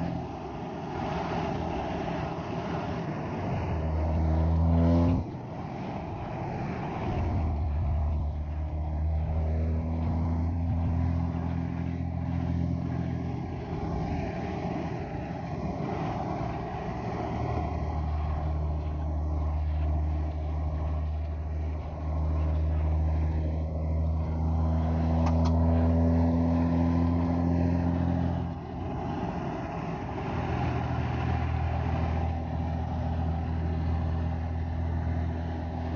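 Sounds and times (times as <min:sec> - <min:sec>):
diesel engine droning: 0:00.0 - 0:35.9.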